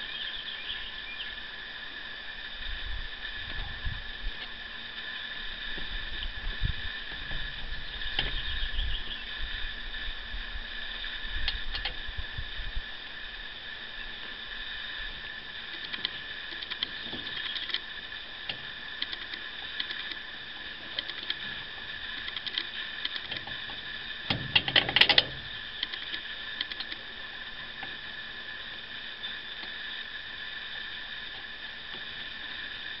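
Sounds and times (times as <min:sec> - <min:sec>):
steady high hum: 0:00.0 - 0:33.0
metallic clicks and rattles: 0:15.7 - 0:17.9, 0:18.5 - 0:20.2, 0:21.0 - 0:21.4, 0:22.2 - 0:27.0.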